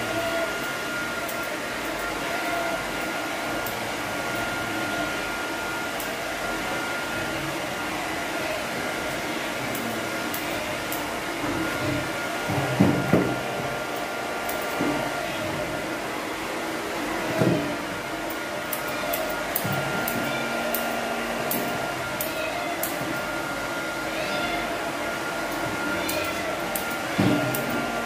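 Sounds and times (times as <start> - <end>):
scissors snipping fur: 9.7 - 11.1, 14.4 - 15.1, 18.3 - 23.2, 25.5 - 27.8.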